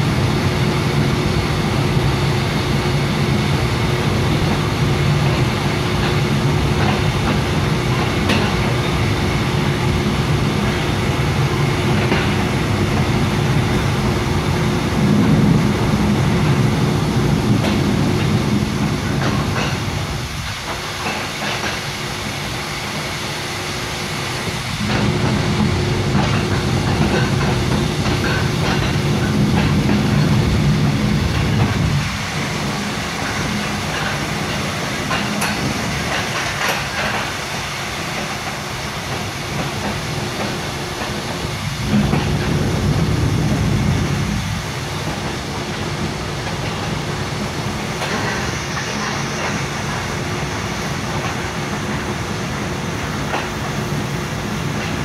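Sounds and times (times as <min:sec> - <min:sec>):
constant hum: 0:00.0 - 0:55.0
train wheels rumbling on rail: 0:00.0 - 0:55.0.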